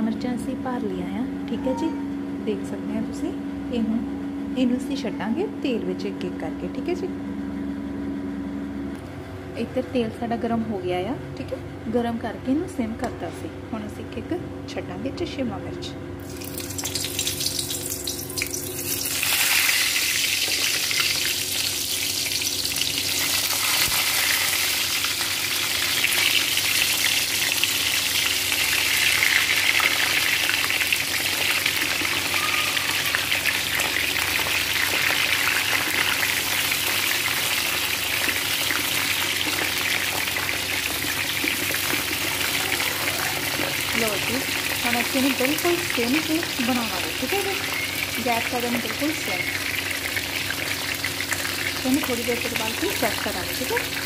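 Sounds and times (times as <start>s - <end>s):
peppers sizzling in hot oil: 16.2s - 54.0s.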